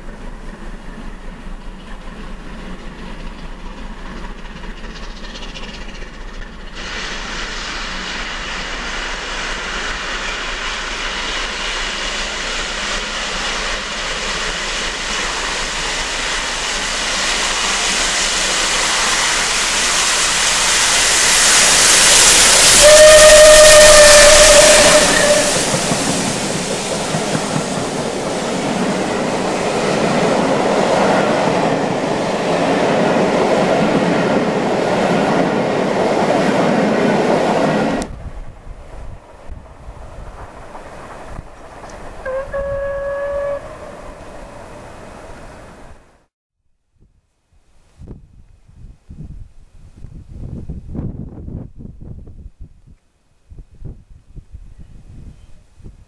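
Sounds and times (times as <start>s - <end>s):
steam locomotive approaching: 0.0s - 46.3s
steam whistle blast: 16.7s - 26.1s, 42.2s - 44.4s.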